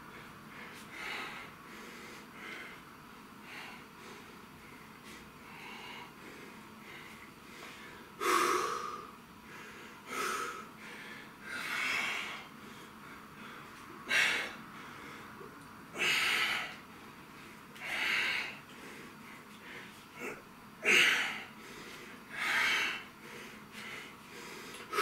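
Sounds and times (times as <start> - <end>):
man breathing heavily: 0.0 - 25.0.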